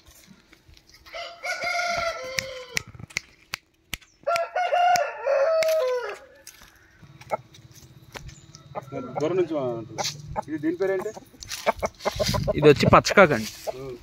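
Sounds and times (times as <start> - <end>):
rooster crowing: 1.1 - 2.9, 4.2 - 7.5, 8.4 - 10.5.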